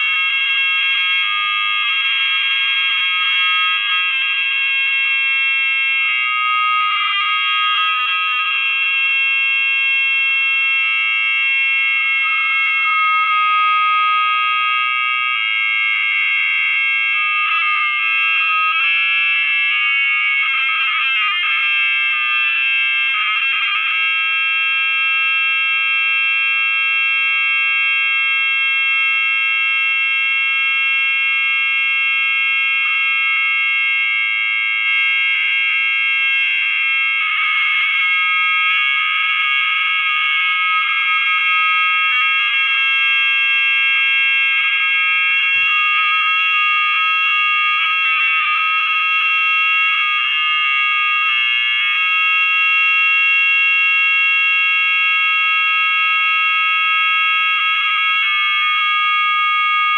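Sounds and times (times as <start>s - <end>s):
high-pitched electronic drone: 12.7s - 24.0s.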